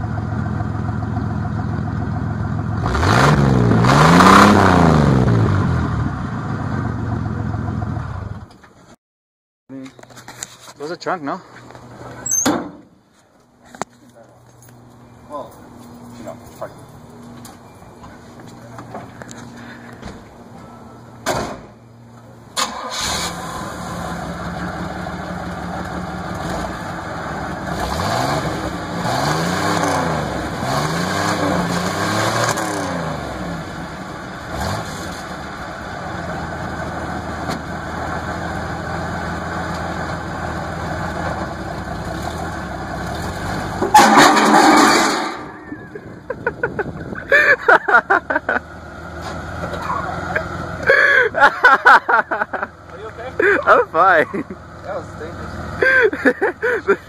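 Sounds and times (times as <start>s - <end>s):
car engine starting and revving: 1.7s - 8.5s, 22.5s - 47.4s.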